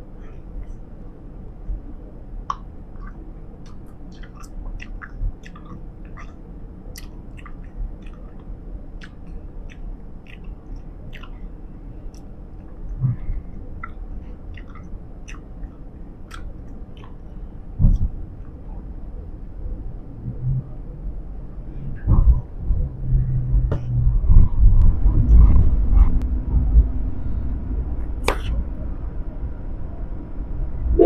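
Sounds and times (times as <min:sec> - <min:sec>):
low steady rumble: 0:00.0 - 0:31.0
gum chewing clicks and smacks: 0:02.5 - 0:11.5, 0:12.1 - 0:18.6
dull low thumps: 0:17.7 - 0:18.3, 0:21.8 - 0:28.9.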